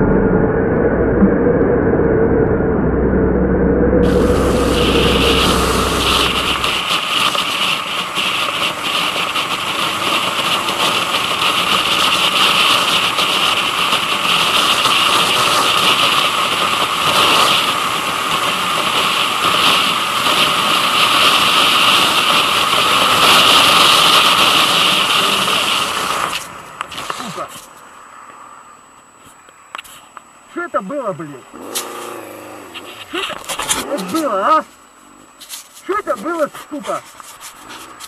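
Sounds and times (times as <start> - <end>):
wind noise: 0.0 - 27.7
motorcycle engine running: 1.1 - 26.4, 31.6 - 34.2.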